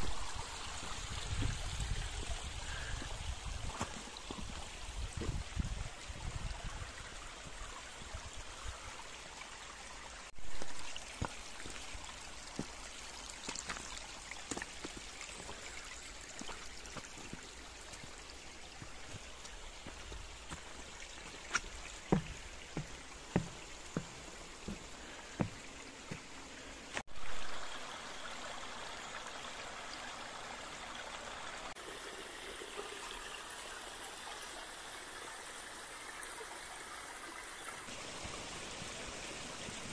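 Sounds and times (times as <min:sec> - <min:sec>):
brook water rushing and trickling: 0:00.0 - 0:39.9.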